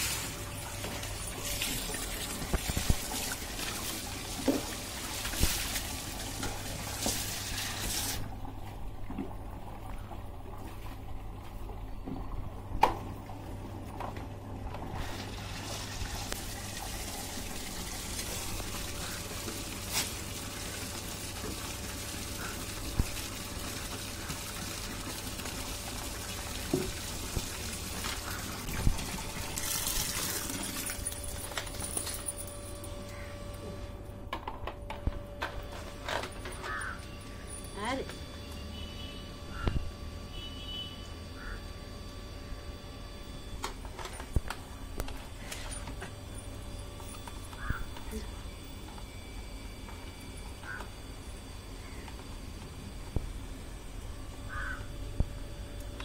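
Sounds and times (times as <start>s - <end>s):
water splashes and knocks: 0.0s - 13.2s, 24.2s - 32.0s
tap water running into tub: 0.0s - 32.5s.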